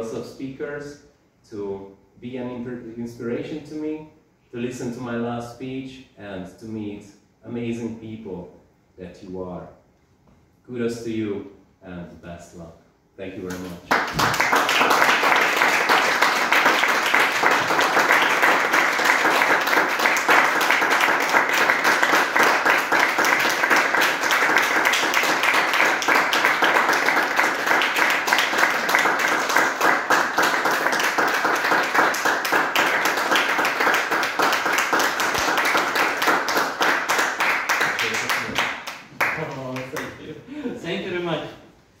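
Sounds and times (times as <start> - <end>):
audience applauding: 13.9 - 40.2.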